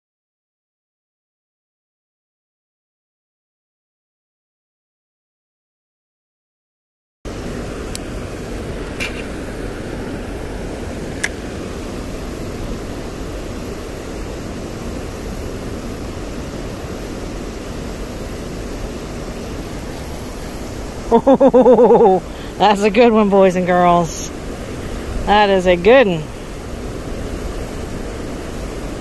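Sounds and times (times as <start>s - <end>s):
water rushing: 7.3s - 29.0s.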